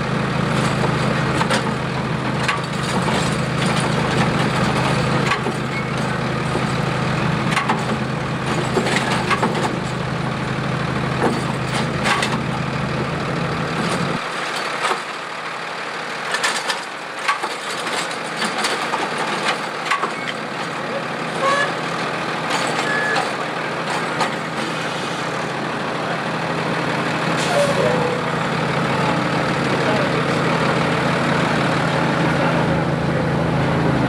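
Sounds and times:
garbage truck engine droning: 0.0 - 34.0
carts and trash clattering: 0.5 - 10.4, 11.1 - 13.2, 16.3 - 25.6.

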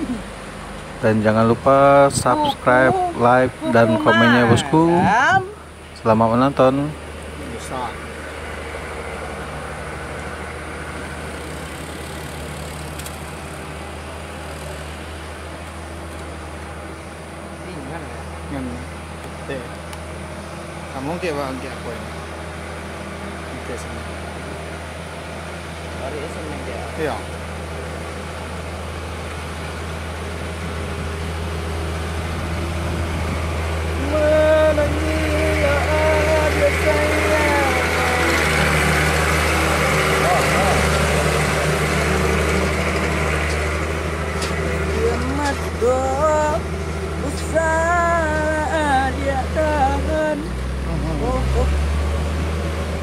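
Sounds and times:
diesel truck engine droning: 0.0 - 53.0
held pitched tone: 2.2 - 5.7.

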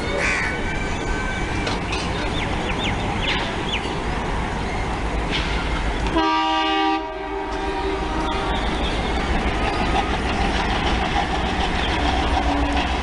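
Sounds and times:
locomotive horn blast: 6.1 - 9.1
locomotive engine chugging: 7.6 - 13.0.

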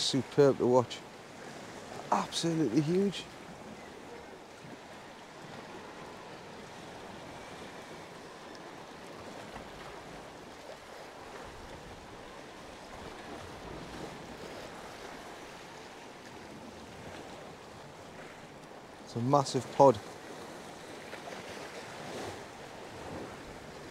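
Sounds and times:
choppy sea water washing: 0.0 - 23.9
wind rumble on microphone: 3.4 - 19.1.

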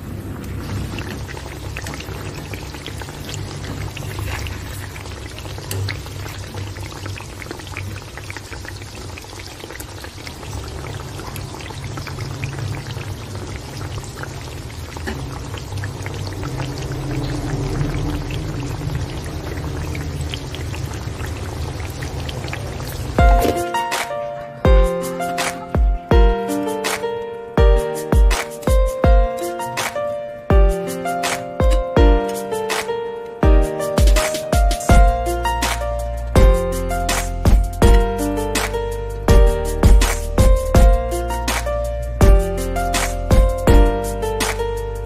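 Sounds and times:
sauce simmering in metal pan: 0.0 - 23.7.

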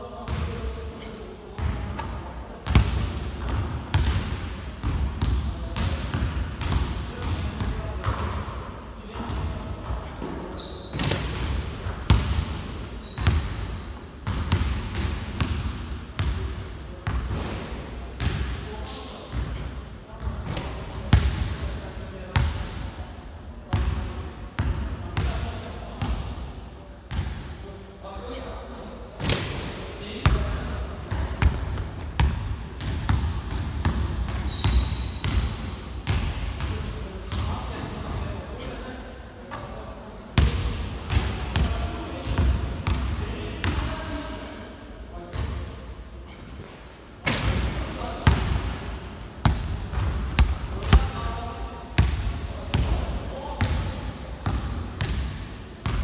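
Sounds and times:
basketball bouncing on court: 2.6 - 4.2, 4.8 - 8.4, 12.1 - 16.4, 30.2 - 37.4, 40.4 - 43.1, 49.4 - 51.4, 52.0 - 53.0, 53.6 - 56.0
high shoe squeaks: 10.5 - 11.2, 13.0 - 14.2, 15.2 - 15.4, 34.4 - 35.2
basketball bouncing on hardwood: 49.5 - 51.1.

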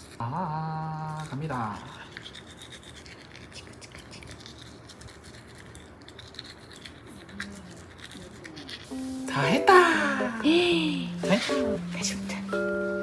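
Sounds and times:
toothbrush scrubbing teeth: 0.0 - 9.6.

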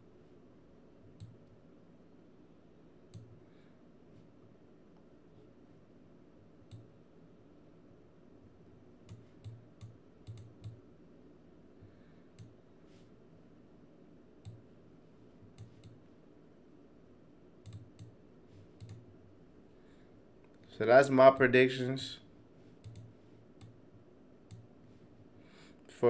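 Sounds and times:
computer mouse clicking: 1.2 - 1.4, 6.7 - 6.9, 9.1 - 10.8, 14.4 - 14.6, 15.6 - 16.0, 17.6 - 18.1, 18.8 - 19.0, 22.8 - 23.8.

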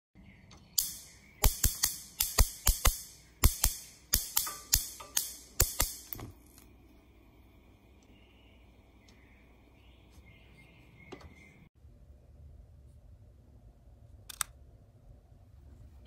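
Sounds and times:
gas stove igniter clicking: 0.8 - 6.7.

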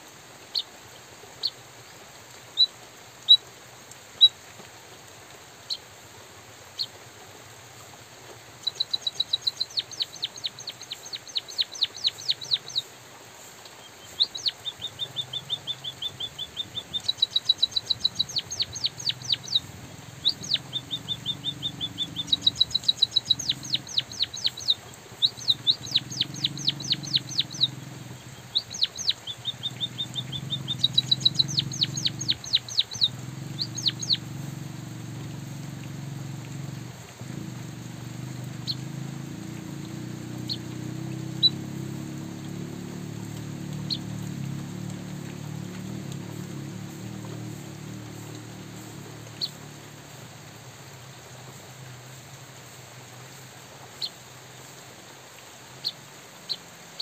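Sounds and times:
bird singing high chip notes: 14.1 - 34.6.

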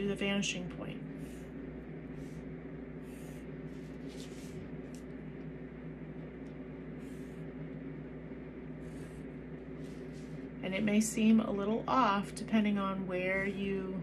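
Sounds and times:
low room hum: 0.0 - 14.0
pencil scratching on paper: 3.0 - 4.7, 8.8 - 10.4.

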